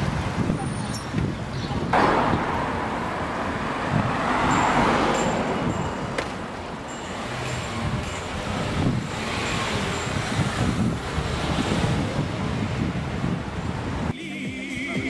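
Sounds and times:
wind buffeting microphone: 0:00.0 - 0:04.6, 0:07.7 - 0:14.1
city street traffic: 0:00.0 - 0:15.0.

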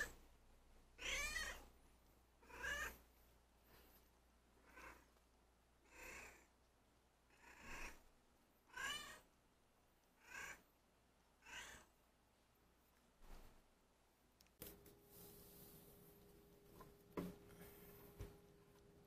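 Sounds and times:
cat meowing softly: 0:01.0 - 0:01.7, 0:02.4 - 0:03.0, 0:08.7 - 0:09.3, 0:11.4 - 0:11.9.

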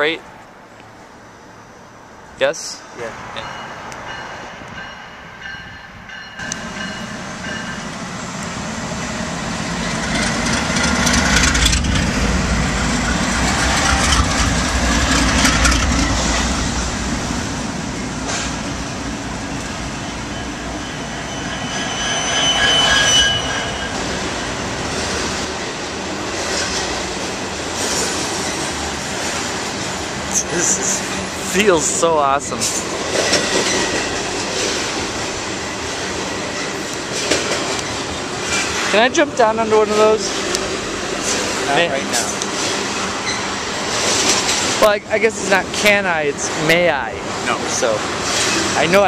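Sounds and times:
diesel locomotive engine rumble: 0:02.7 - 0:49.0
train wheels clattering on rails: 0:09.7 - 0:16.8, 0:18.1 - 0:21.8, 0:22.6 - 0:30.0, 0:32.5 - 0:41.6, 0:42.2 - 0:46.0, 0:47.4 - 0:49.0
high wheel squeal: 0:19.5 - 0:25.0, 0:42.8 - 0:43.8.

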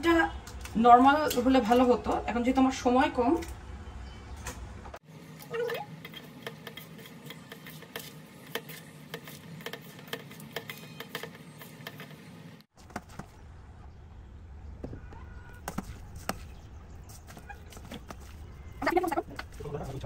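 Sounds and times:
hands mixing cabbage in steel bowl: 0:05.3 - 0:12.6.

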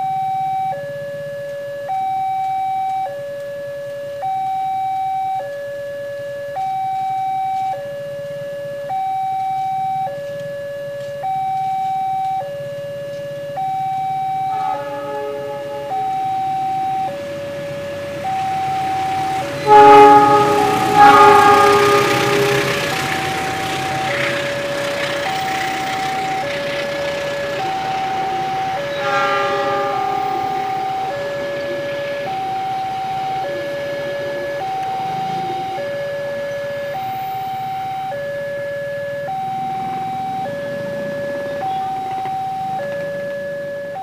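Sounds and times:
level crossing two-tone alarm: 0:00.0 - 0:44.0
locomotive horn: 0:13.6 - 0:43.3.

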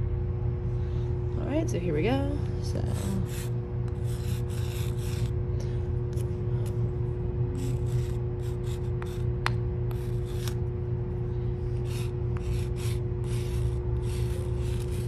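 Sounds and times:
steady low hum: 0:00.0 - 0:15.0
chalk scraping on concrete: 0:02.9 - 0:05.4, 0:07.6 - 0:09.3, 0:09.9 - 0:10.6, 0:11.7 - 0:15.0.

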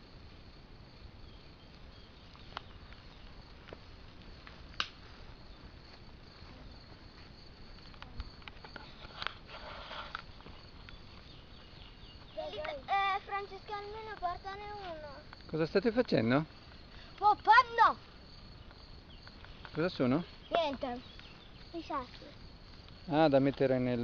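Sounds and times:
steady low hiss: 0:00.0 - 0:24.0
rustling through long grass: 0:01.7 - 0:15.3.

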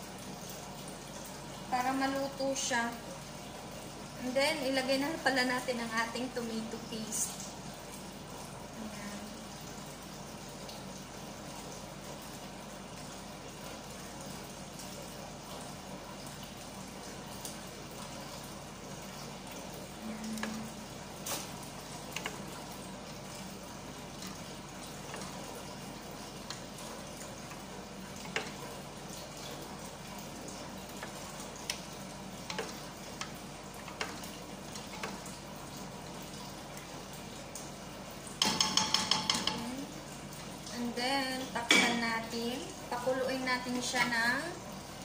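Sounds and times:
sharp ringing taps on pot: 0:38.4 - 0:39.7
wooden spoon knocking on pot: 0:38.4 - 0:39.7.

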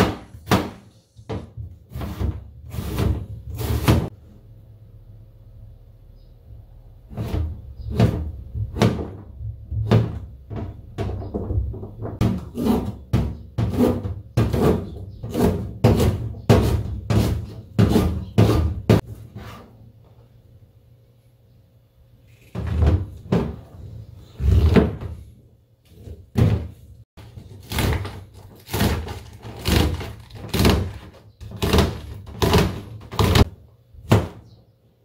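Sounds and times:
knife chopping on plastic board: 0:12.2 - 0:19.0.

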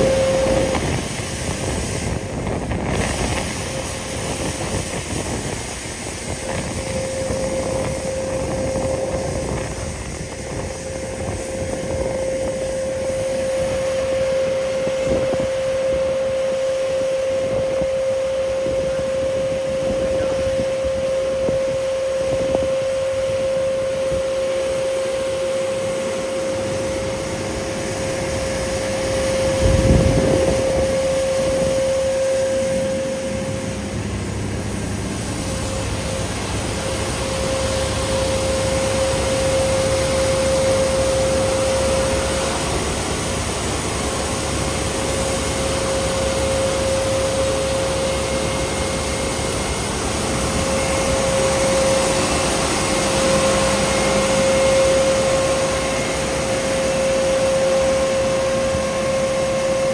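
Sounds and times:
road sweeper working: 0:00.0 - 0:59.9.

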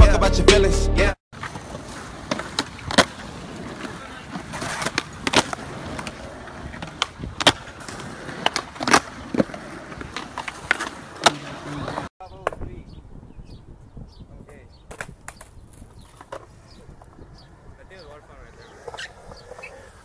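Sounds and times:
skateboard wheels rolling on concrete: 0:01.3 - 0:20.0
skateboard tail popping and landing: 0:01.4 - 0:12.7, 0:14.9 - 0:17.2.

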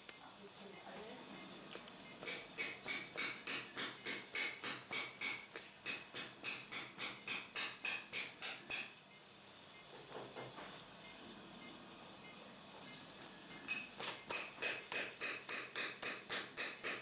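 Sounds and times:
mallet striking metal chisel: 0:02.2 - 0:08.9, 0:13.7 - 0:17.0.

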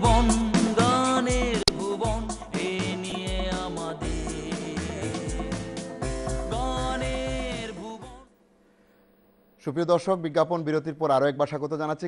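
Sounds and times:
instrumental tv theme music: 0:00.0 - 0:08.4.

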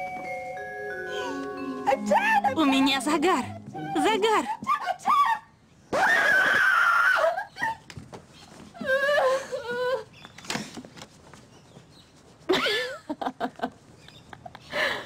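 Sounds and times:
girl whining: 0:01.0 - 0:05.4
girl screaming: 0:06.0 - 0:07.5.

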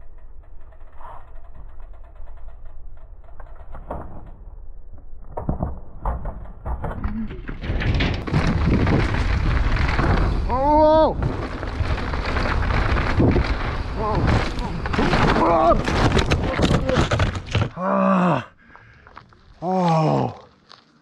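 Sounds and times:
tyres rumbling over gravel: 0:07.6 - 0:17.8.

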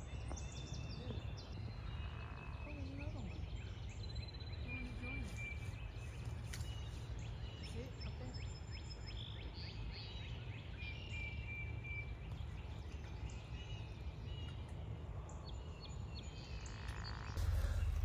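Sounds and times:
birds chirping and calling: 0:00.0 - 0:18.0
low rumble: 0:17.4 - 0:18.0.

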